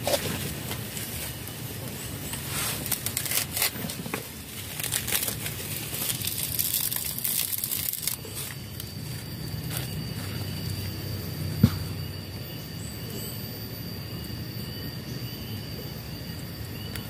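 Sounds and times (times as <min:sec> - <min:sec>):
coconut husk fibre tearing: 0:02.4 - 0:08.9.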